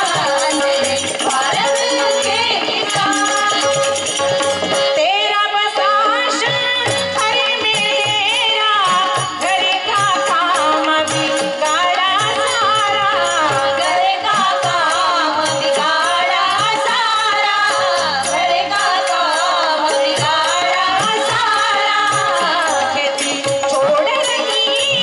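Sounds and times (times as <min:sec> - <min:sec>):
percussion in even rhythm: 0:00.0 - 0:25.0
woman singing: 0:00.0 - 0:25.0.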